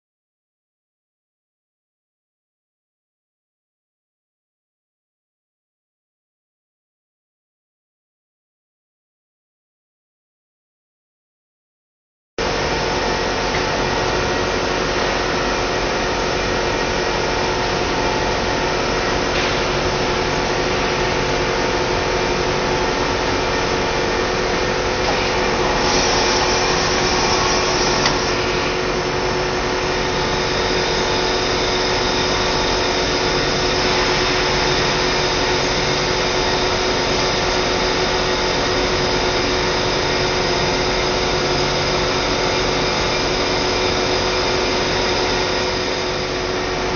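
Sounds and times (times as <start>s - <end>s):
machine hum and hiss: 12.4s - 46.9s
loud hiss: 25.3s - 28.6s.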